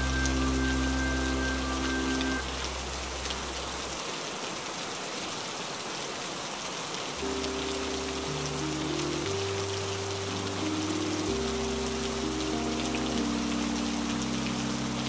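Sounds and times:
soft ambient music: 0.0s - 3.3s, 7.2s - 15.0s
steady rain: 0.0s - 15.0s.

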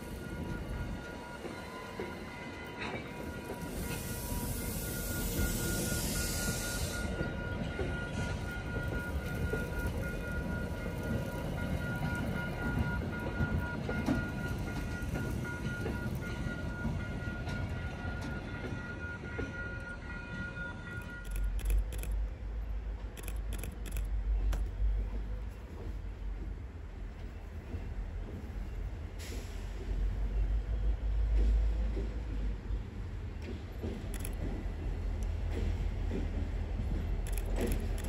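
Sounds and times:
crossing warning bell ringing: 0.0s - 22.2s
train wheels rumbling on rails: 0.0s - 38.0s.

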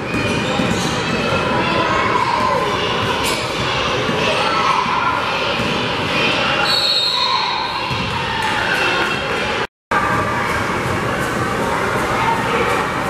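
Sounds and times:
gymnasium crowd noise: 0.0s - 13.0s
referee's whistle: 6.6s - 7.7s.

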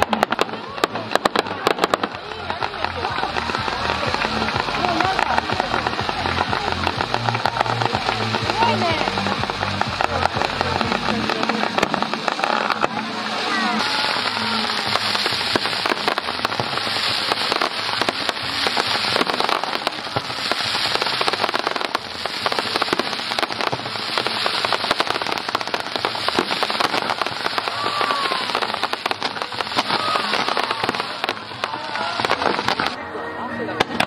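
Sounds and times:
fireworks cracking and popping: 0.0s - 34.0s.

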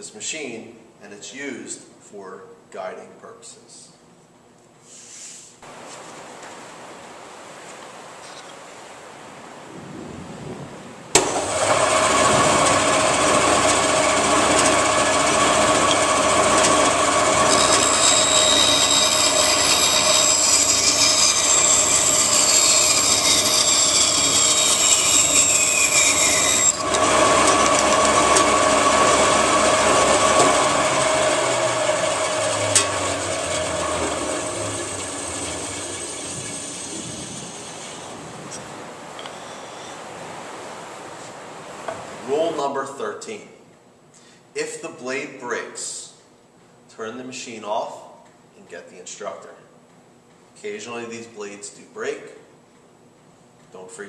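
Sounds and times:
band saw humming: 11.2s - 40.0s
saw cutting wood whine: 11.2s - 40.0s.

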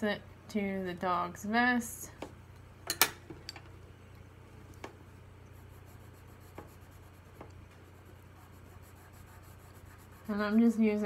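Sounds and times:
pencil scratching on paper: 5.5s - 11.0s.

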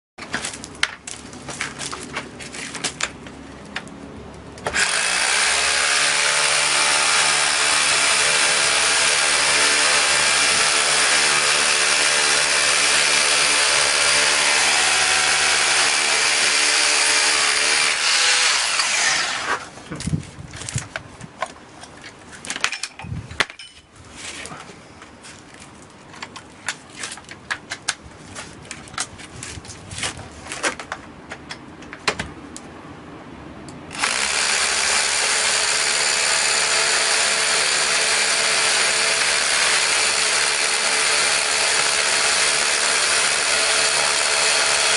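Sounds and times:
knocks and handling sounds: 0.2s - 4.8s, 19.8s - 32.6s
rotary hammers drilling concrete: 4.7s - 19.7s, 33.9s - 44.9s.

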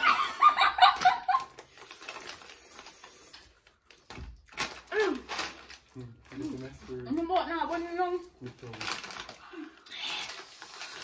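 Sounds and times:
foil chip bags crinkling: 0.8s - 11.0s.

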